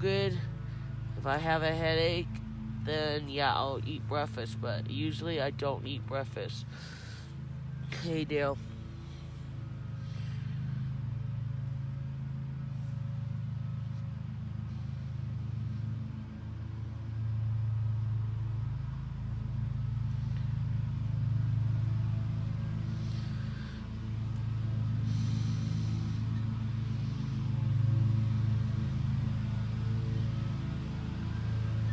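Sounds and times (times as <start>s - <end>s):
mechanical hum and rumble: 0.0s - 31.9s.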